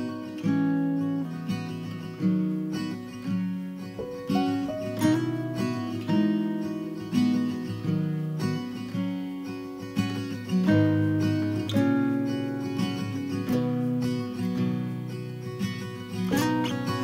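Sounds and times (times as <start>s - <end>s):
acoustic guitar chords plucked: 0.0s - 17.0s.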